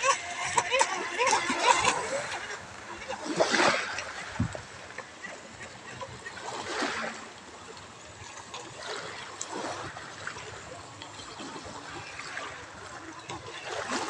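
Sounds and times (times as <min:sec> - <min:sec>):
waves lapping on pebbles: 0:00.0 - 0:14.0.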